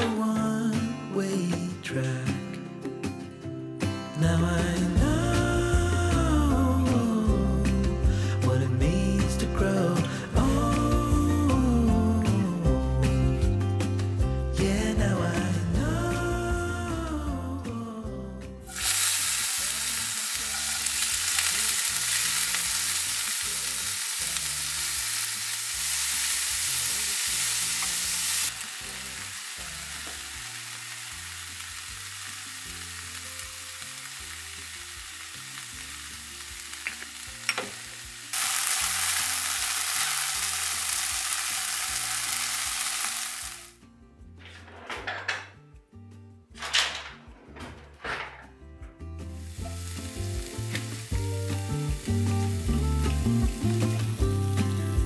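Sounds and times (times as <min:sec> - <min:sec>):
food sizzling in frying pan: 0:18.6 - 0:43.8, 0:49.3 - 0:55.0.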